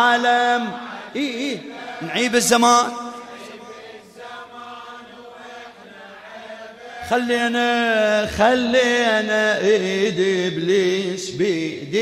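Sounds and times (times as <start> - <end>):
man chanting through a microphone: 0.0 - 3.5, 6.9 - 12.0.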